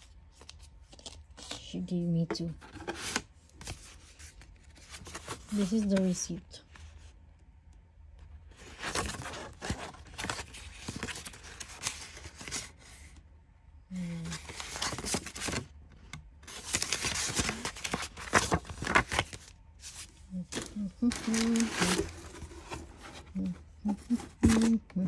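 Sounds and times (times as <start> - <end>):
paper rustling and crinkling: 2.5 - 7.0, 8.5 - 13.1, 14.0 - 15.7, 16.4 - 25.0.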